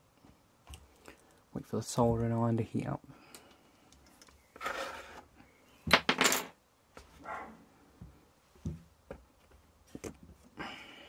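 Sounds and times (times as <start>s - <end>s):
tools knocking and clattering: 5.9s - 6.5s.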